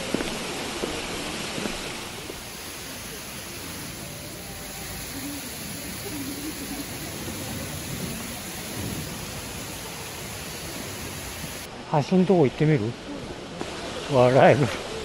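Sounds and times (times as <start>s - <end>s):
waterfall rushing: 0.0s - 11.8s.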